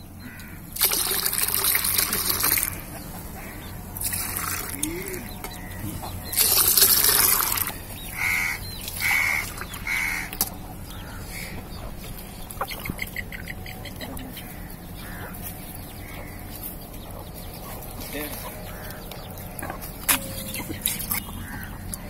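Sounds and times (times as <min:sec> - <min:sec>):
bird calling: 0:00.0 - 0:22.0
liquid pouring into metal bowl: 0:00.8 - 0:02.8, 0:04.0 - 0:04.8, 0:06.4 - 0:07.7.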